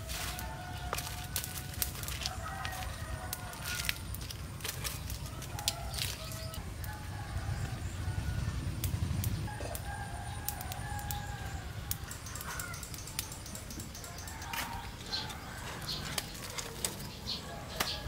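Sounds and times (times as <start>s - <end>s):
rooster crowing: 0.0s - 4.1s, 5.2s - 8.8s, 9.5s - 12.9s, 14.0s - 16.8s.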